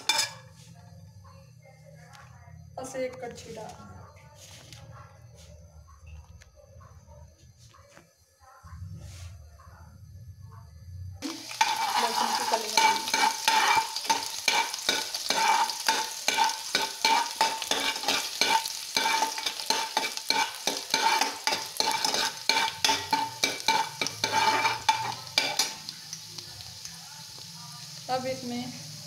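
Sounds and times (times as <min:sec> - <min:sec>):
oil sizzling: 0:00.0 - 0:00.6, 0:11.2 - 0:29.0
ladle scraping metal pan: 0:11.5 - 0:25.7.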